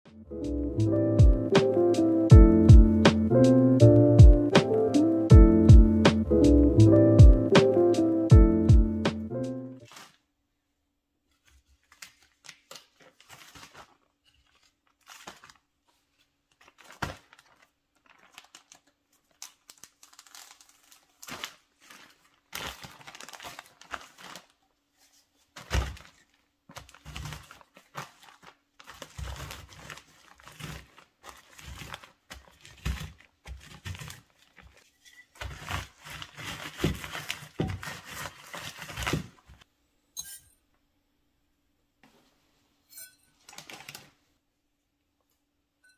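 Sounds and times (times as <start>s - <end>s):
plastic bag crinkling: 9.8s - 10.2s, 11.3s - 39.6s, 43.4s - 44.2s
cookies crushed by rolling pin: 25.5s - 39.6s.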